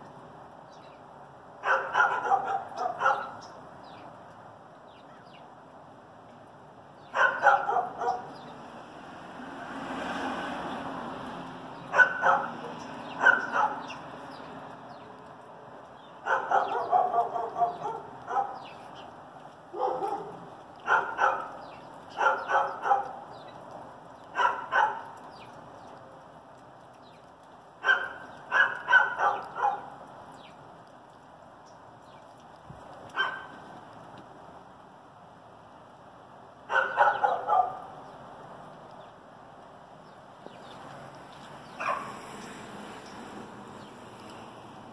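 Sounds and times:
dog barking: 0:01.6 - 0:03.4, 0:07.1 - 0:08.4, 0:11.9 - 0:14.0, 0:16.2 - 0:18.7, 0:19.7 - 0:21.6, 0:22.2 - 0:23.2, 0:24.4 - 0:25.1, 0:27.8 - 0:29.9, 0:33.2 - 0:33.6, 0:36.7 - 0:37.9, 0:41.8 - 0:42.2.

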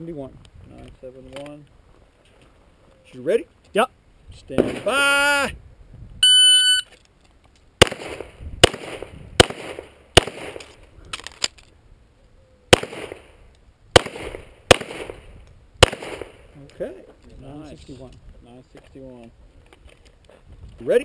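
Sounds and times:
shot timer beep: 0:06.2 - 0:06.9
pistol shots: 0:07.8 - 0:10.7, 0:12.7 - 0:16.4.

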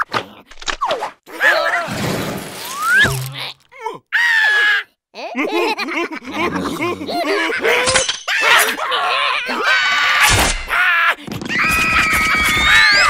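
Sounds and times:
slapstick crash effects: 0:01.9 - 0:03.6
cartoon mouse shrieking: 0:08.3 - 0:13.0.

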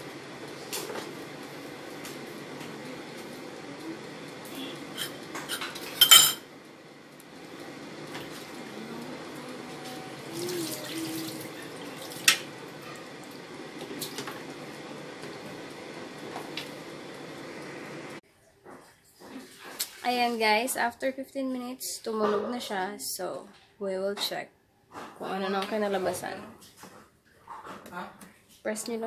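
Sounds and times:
air fryer fan whirring: 0:00.0 - 0:18.2.

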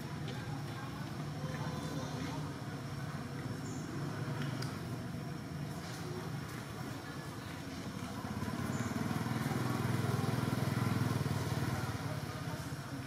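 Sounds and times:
motorcycle engine passing by: 0:07.9 - 0:12.9.

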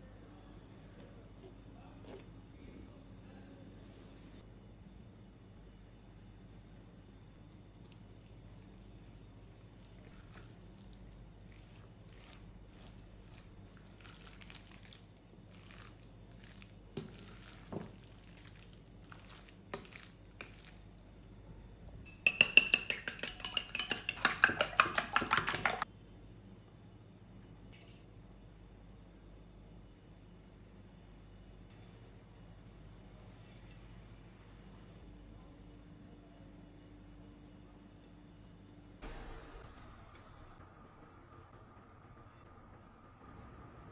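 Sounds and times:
utensil clinking against bowl: 0:22.1 - 0:25.8
utensil scraping bowl: 0:22.1 - 0:25.8.

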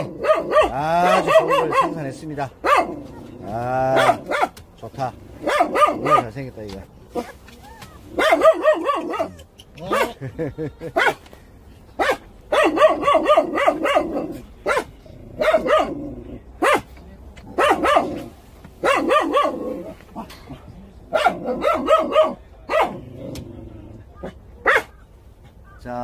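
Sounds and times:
dog barking: 0:00.0 - 0:03.1, 0:03.9 - 0:04.6, 0:05.4 - 0:06.4, 0:08.1 - 0:10.2, 0:10.9 - 0:11.2, 0:12.0 - 0:16.9, 0:17.5 - 0:20.0, 0:21.1 - 0:23.1, 0:24.2 - 0:25.0.

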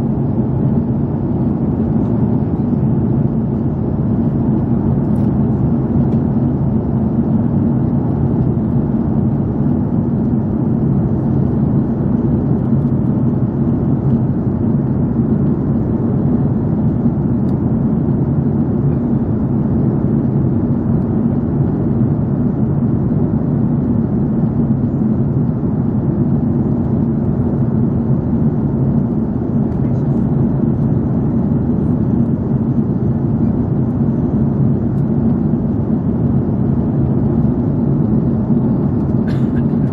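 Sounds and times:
aircraft cabin engine rumble: 0:00.0 - 0:39.9
faint hum: 0:00.0 - 0:39.9.

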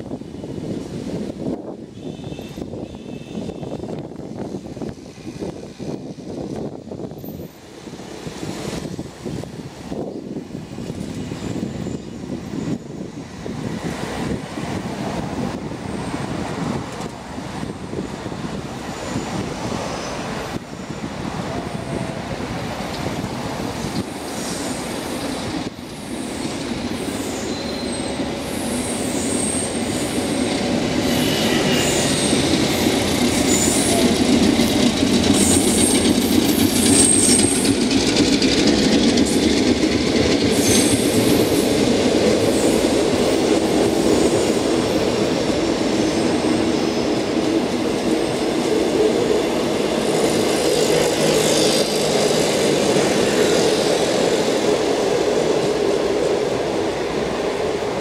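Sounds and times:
diesel train rumble: 0:00.0 - 0:58.0
high-pitched wheel squeals: 0:27.2 - 0:30.4.

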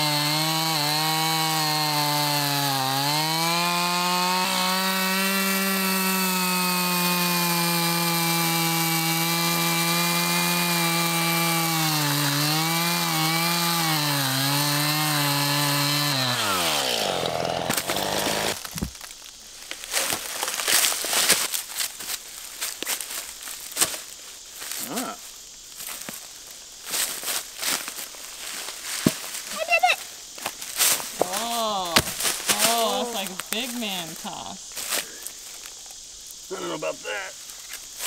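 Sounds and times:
chainsaw cutting log: 0:00.0 - 0:19.1, 0:30.8 - 0:34.3
rustling: 0:25.8 - 0:36.0.

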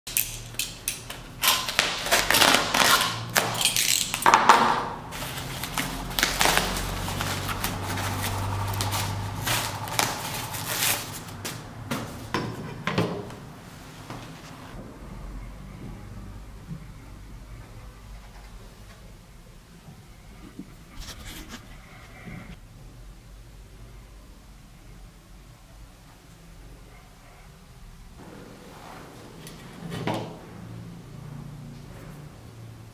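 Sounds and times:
tape peeling: 0:00.1 - 0:04.4, 0:05.1 - 0:11.7
wrapping crinkling and rustling: 0:00.1 - 0:04.4, 0:05.0 - 0:11.7
steady low hum: 0:05.0 - 0:28.6
low hum: 0:05.1 - 0:12.2.

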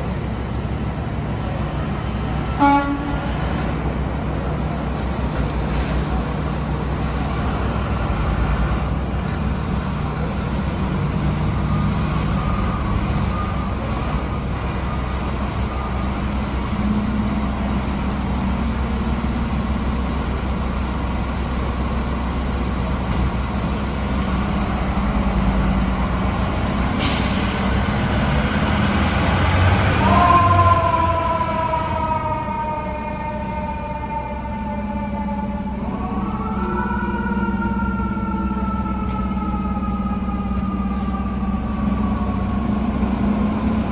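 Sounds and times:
air brakes hissing: 0:26.9 - 0:27.8.

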